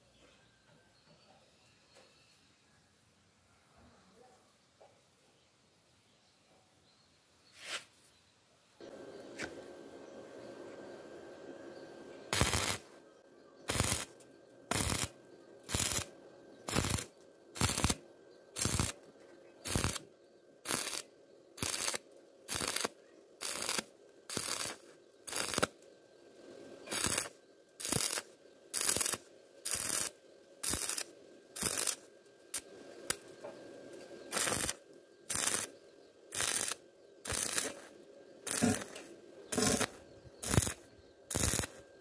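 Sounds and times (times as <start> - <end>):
welding arc crackling: 12.3 - 12.9, 13.7 - 25.9, 26.8 - 33.4, 34.3 - 41.8.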